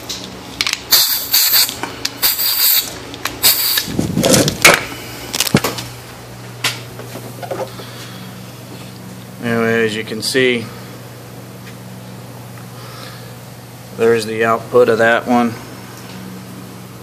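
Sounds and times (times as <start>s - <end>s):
steady low hum: 0.0s - 17.0s
air hiss: 0.9s - 3.9s.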